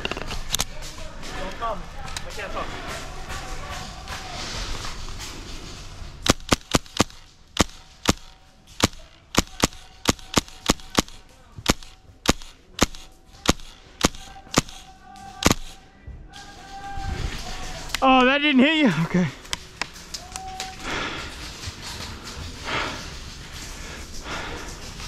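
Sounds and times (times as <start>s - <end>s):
airsoft rifle shots: 6.3s - 14.8s, 15.4s - 15.8s.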